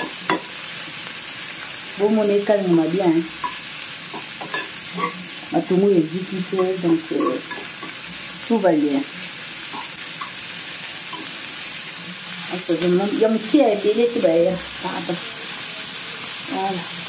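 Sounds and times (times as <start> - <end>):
food sizzling in frying pan: 0.0 - 17.0
woman speaking: 2.0 - 3.4, 5.5 - 7.5, 8.5 - 9.1, 12.5 - 15.3, 16.4 - 17.0
fork stirring in pan: 3.4 - 5.4, 6.6 - 8.4.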